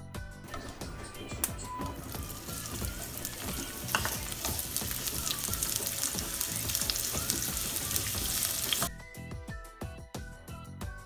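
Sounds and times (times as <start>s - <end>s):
spatula scraping a pan: 1.6s - 5.2s
onion rings sizzling in oil: 1.9s - 8.9s.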